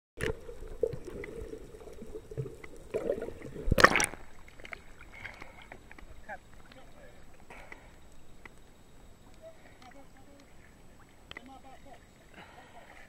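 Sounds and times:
seawater gurgling and sloshing: 0.2 - 7.3
low steady hum: 0.2 - 13.0
loud water splash: 2.9 - 4.3.

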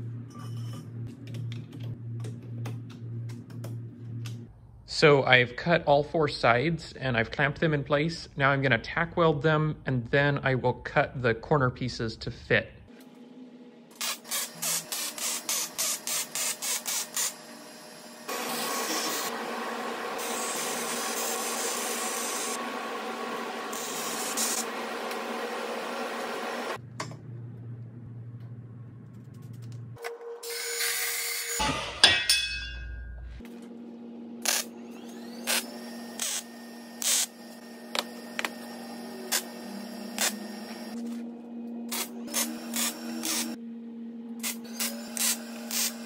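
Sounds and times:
low hum: 0.0 - 5.2, 26.7 - 30.4, 31.9 - 35.3, 37.6 - 45.7
welder crackling: 18.2 - 26.8, 34.4 - 41.0, 41.9 - 43.6.

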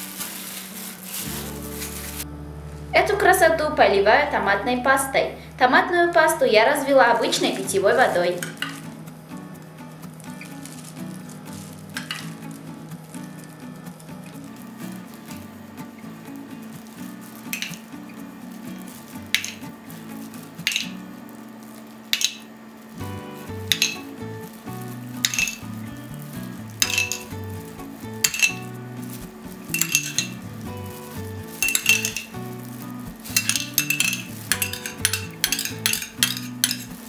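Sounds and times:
background music: 1.2 - 21.2, 22.1 - 37.0
metal spoon clinking on glass dish: 19.4 - 19.6, 20.7 - 20.9, 22.2 - 22.4, 23.7 - 24.0, 25.2 - 25.6, 26.8 - 27.3, 28.2 - 28.7, 29.7 - 30.4, 31.6 - 32.3, 33.3 - 36.9.

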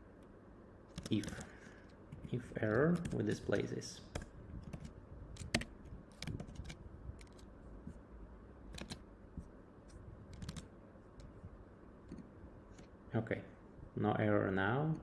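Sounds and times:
keyboard typing: 0.9 - 7.5, 8.7 - 9.1, 10.3 - 11.3.

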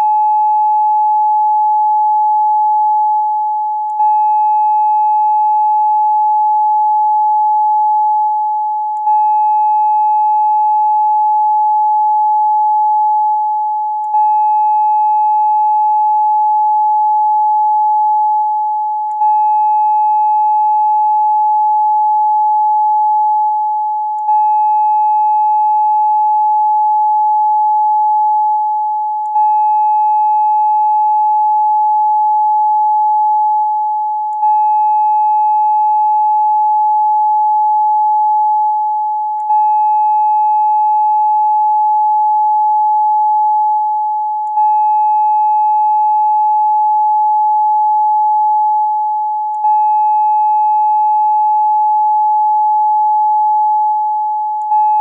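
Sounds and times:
steady pure tone: 0.0 - 55.0.

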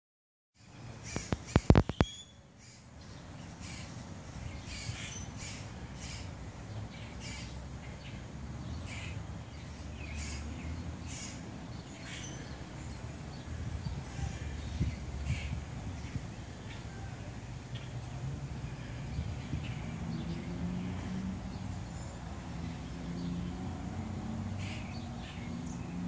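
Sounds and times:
birds calling: 0.6 - 26.0
sharp clicks: 1.1 - 2.1.

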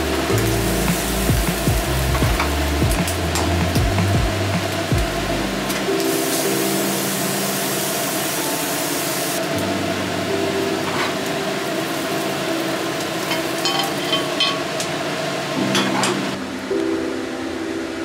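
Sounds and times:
chickpeas sizzling in oil: 5.6 - 9.5, 10.8 - 14.9
pan clinking on burner grate: 13.3 - 14.6.

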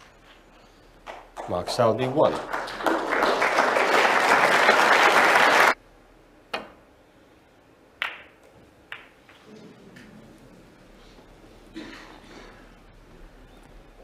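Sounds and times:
audience applause: 1.4 - 5.8
snooker balls clicking: 8.0 - 9.5.

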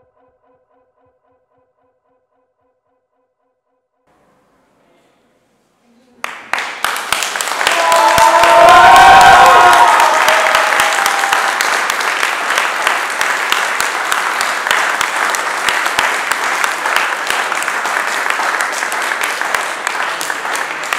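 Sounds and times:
audience applauding: 6.2 - 20.9.

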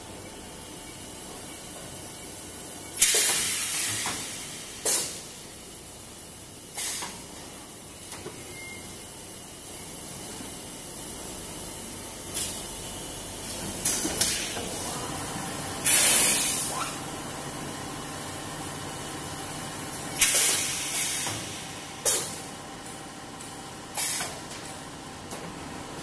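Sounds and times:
sharp air blasts: 3.0 - 5.4, 6.8 - 7.2, 15.8 - 17.0, 20.1 - 22.4, 24.0 - 24.4
compressed air hissing: 3.0 - 5.5, 15.8 - 17.0, 20.1 - 22.4, 24.0 - 24.4
machine running noise: 12.2 - 26.0.

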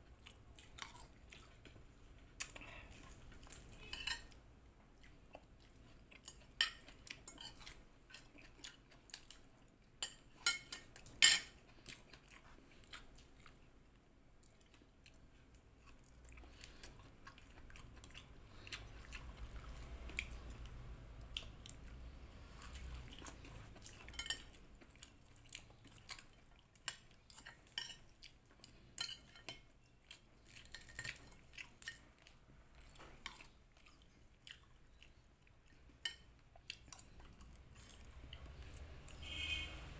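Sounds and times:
chewing: 0.0 - 39.3
cutlery clinking on a plate: 3.5 - 4.4, 10.0 - 11.6, 24.0 - 24.6.

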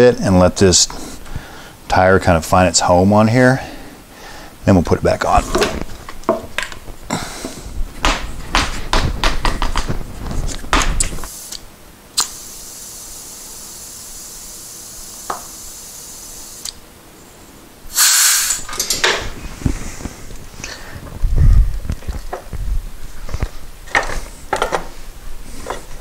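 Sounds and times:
tyre bouncing on floor thuds: 8.0 - 10.1
steady hiss: 10.1 - 26.0.

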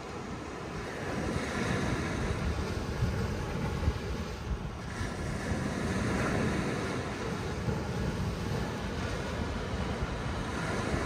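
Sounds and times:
waves breaking on beach: 0.0 - 11.0
wind on microphone: 0.0 - 11.0.

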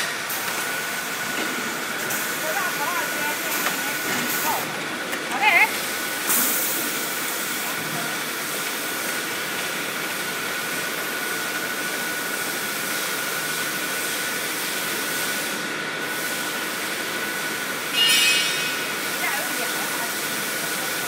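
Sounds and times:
packing machine noise: 0.0 - 21.0
high machine whine: 17.6 - 20.9.

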